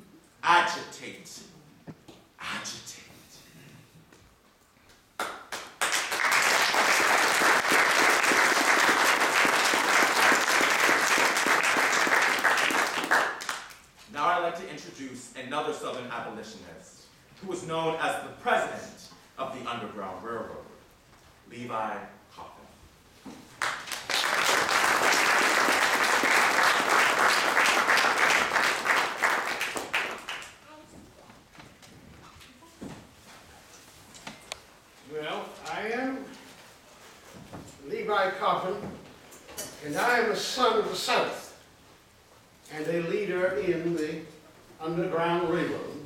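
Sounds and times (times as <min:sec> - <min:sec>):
audience applauding: 0:05.2 - 0:13.8, 0:23.6 - 0:30.6.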